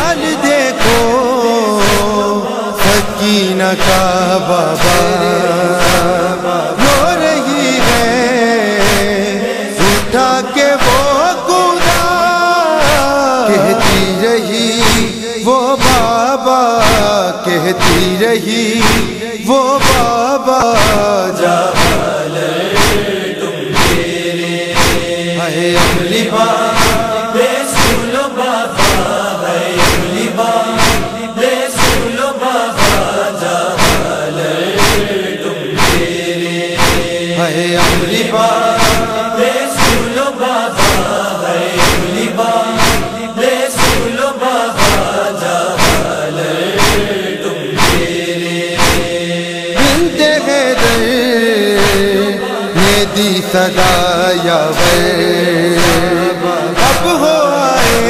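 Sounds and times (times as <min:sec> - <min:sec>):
chorus of voices chanting: 0:00.0 - 0:58.0
steady percussive beat: 0:05.8 - 0:06.2, 0:07.8 - 0:09.2, 0:10.8 - 0:11.2, 0:11.8 - 0:12.2, 0:12.8 - 0:14.2, 0:14.8 - 0:16.2, 0:16.8 - 0:17.1, 0:17.8 - 0:21.1, 0:21.8 - 0:22.2, 0:22.8 - 0:27.2, 0:27.8 - 0:28.1, 0:28.8 - 0:29.2, 0:29.8 - 0:30.2, 0:30.8 - 0:32.2, 0:32.8 - 0:33.2, 0:33.8 - 0:34.2, 0:34.8 - 0:35.2, 0:35.8 - 0:40.2, 0:40.8 - 0:41.2, 0:41.8 - 0:42.2, 0:42.8 - 0:44.2, 0:45.8 - 0:46.2, 0:46.8 - 0:47.2, 0:47.8 - 0:50.2, 0:51.8 - 0:52.2.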